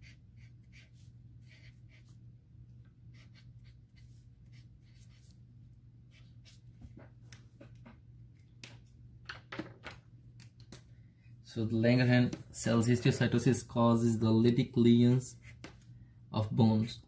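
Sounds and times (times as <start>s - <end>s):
marker scratching on whiteboard: 0.0s - 2.2s, 3.1s - 5.4s, 6.1s - 7.0s
steady low hum: 0.0s - 9.3s, 9.9s - 17.0s.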